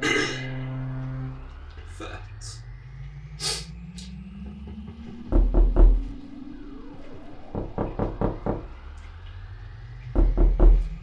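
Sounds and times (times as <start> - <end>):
synthesizer music with rising tones: 0.0 - 11.0
heavy knocking: 5.2 - 6.0, 10.2 - 11.0.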